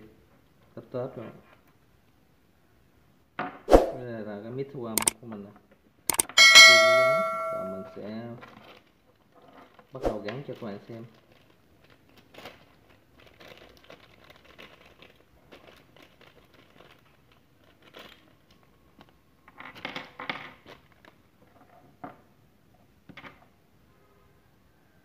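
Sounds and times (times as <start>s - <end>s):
short clicks: 6.1s - 7.9s
plastic bag crinkling: 11.1s - 19.1s.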